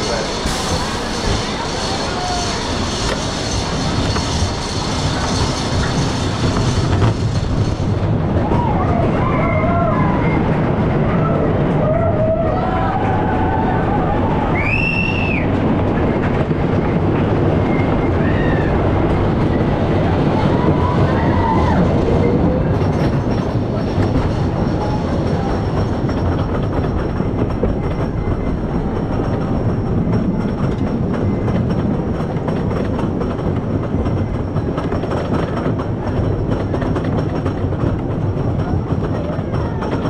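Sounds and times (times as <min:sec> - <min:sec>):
high squeals: 0:00.0 - 0:08.0
lift chain clacking: 0:00.0 - 0:08.2, 0:20.6 - 0:40.0
coaster cars rumbling on wooden track: 0:00.0 - 0:40.0.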